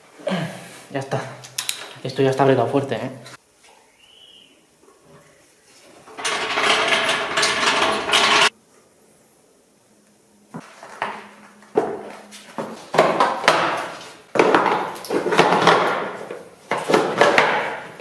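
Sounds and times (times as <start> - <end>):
metal scraping: 6.1 - 8.5
metal tools knocking and clinking: 6.2 - 8.5.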